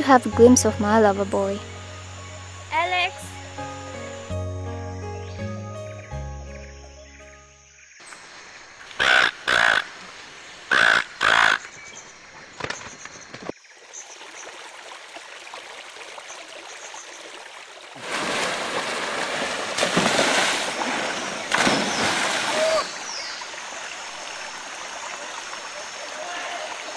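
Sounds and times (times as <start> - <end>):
crow cawing: 9.0 - 9.9, 10.7 - 11.7.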